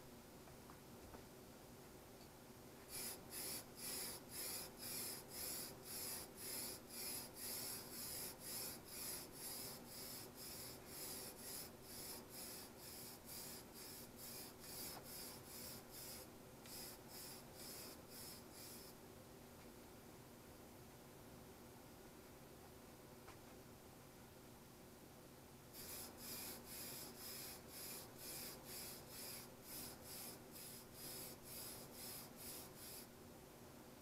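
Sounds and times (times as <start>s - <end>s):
spray-paint can hissing bursts: 2.9s - 19.0s, 25.8s - 33.1s.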